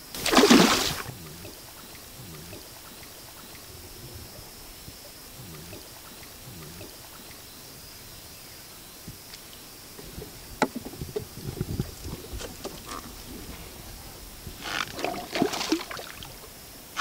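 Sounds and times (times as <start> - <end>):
high insect buzz: 0.0 - 10.7, 11.3 - 17.0
fish splashing at water surface: 0.2 - 1.1.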